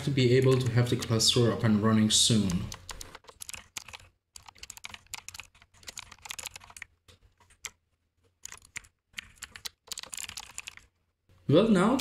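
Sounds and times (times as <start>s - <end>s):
typing on computer keyboard: 2.4s - 7.8s, 8.4s - 10.9s.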